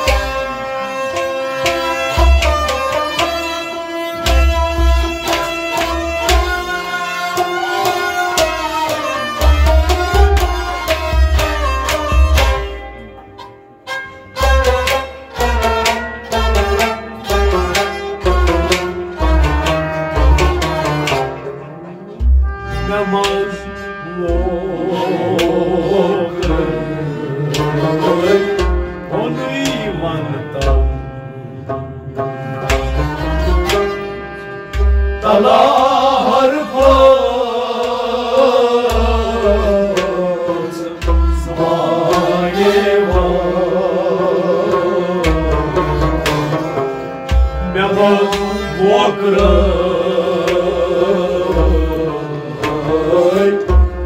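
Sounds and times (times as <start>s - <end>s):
sustained melodic instruments: 0.0s - 54.0s
hand drum beats: 1.6s - 13.1s, 14.4s - 23.6s, 24.3s - 31.0s, 36.7s - 54.0s
man singing ornamented melody: 22.8s - 32.1s, 35.2s - 46.0s, 47.6s - 53.8s.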